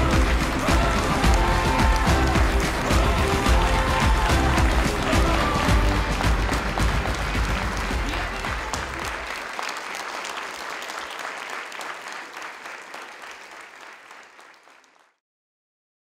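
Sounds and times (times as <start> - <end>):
background music: 0.0 - 9.5
audience applauding: 0.0 - 15.2.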